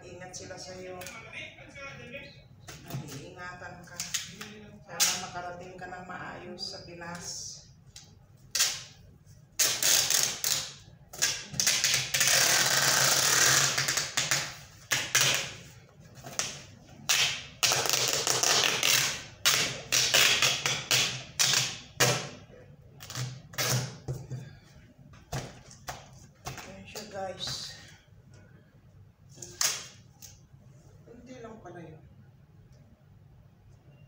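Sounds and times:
packing tape pulled off roll: 0:09.6 - 0:15.6, 0:16.4 - 0:22.2
tape ripping: 0:09.6 - 0:15.6, 0:16.4 - 0:22.4, 0:23.0 - 0:24.0.

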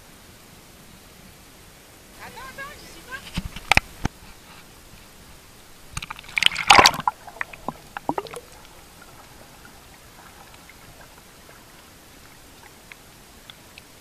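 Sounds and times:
faint underwater hiss: 0:00.0 - 0:14.0
sharp pops and clicks: 0:05.9 - 0:09.2
loud splash and bubbling: 0:06.0 - 0:12.8.

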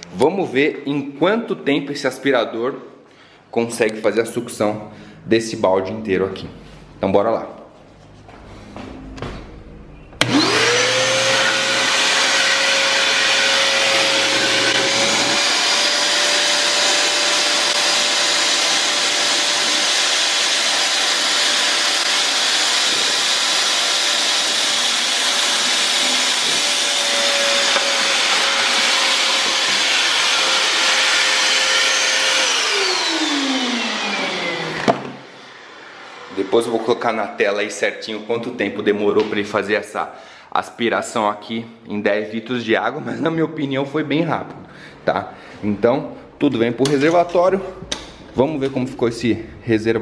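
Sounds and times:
vacuum cleaner motor whining: 0:10.2 - 0:36.8.

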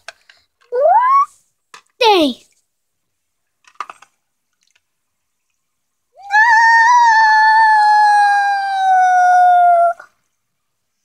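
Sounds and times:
high-pitched wail: 0:06.2 - 0:10.0.

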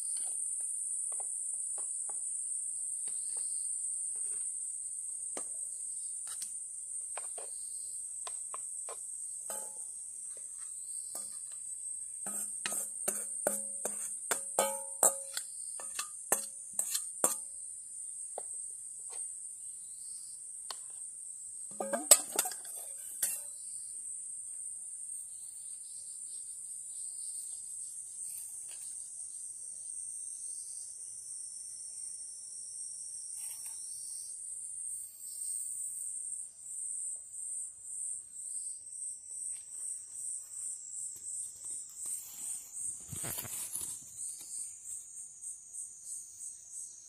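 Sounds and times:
insects chirring: 0:00.0 - 0:47.0
metal bowl clinking: 0:09.5 - 0:09.9, 0:12.3 - 0:17.4, 0:21.7 - 0:23.6.

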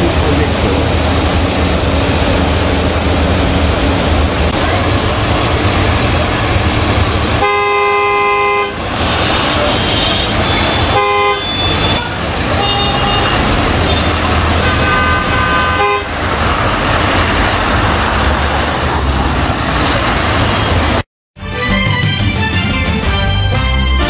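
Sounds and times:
street traffic noise: 0:00.0 - 0:21.1
car horns honking: 0:07.3 - 0:16.6.

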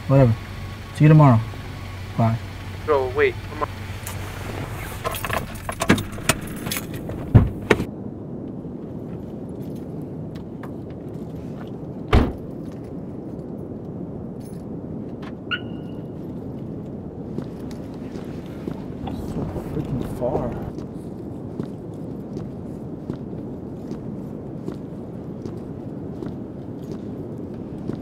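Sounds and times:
car door slamming: 0:03.9 - 0:07.9, 0:12.1 - 0:12.4
car keys jangling: 0:04.0 - 0:07.9
short electronic beep: 0:15.5 - 0:16.2.

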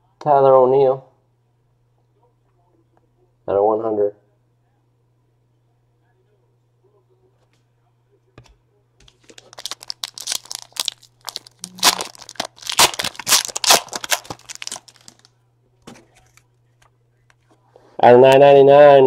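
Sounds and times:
wrapper tearing and crinkling: 0:09.1 - 0:15.3.

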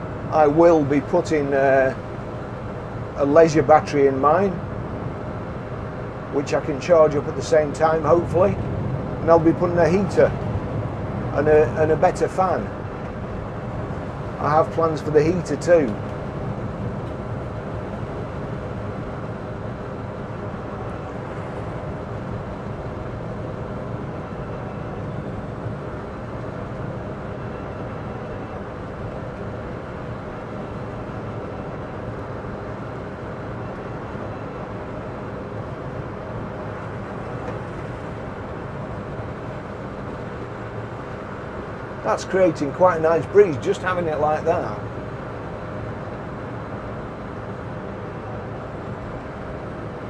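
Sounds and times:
faint steady tones: 0:00.0 - 0:50.0.

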